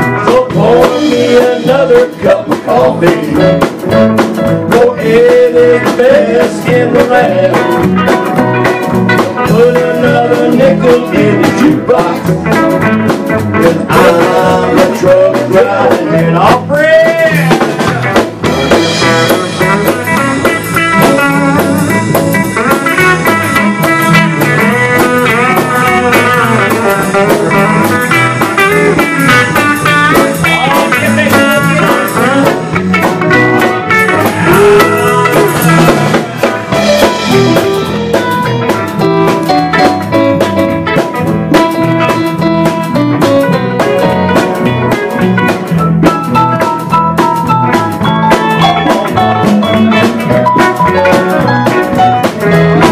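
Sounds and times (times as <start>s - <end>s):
country band playing: 0.0s - 52.9s
sliding lead guitar line: 0.0s - 52.9s.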